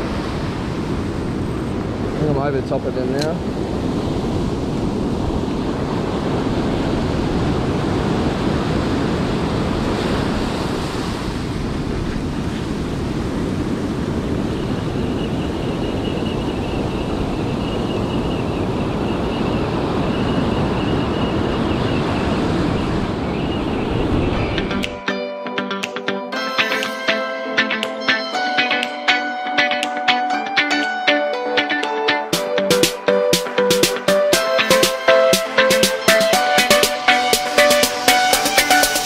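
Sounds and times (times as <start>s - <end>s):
surf washing up a beach: 0.0s - 24.8s
wind on microphone: 0.0s - 25.0s.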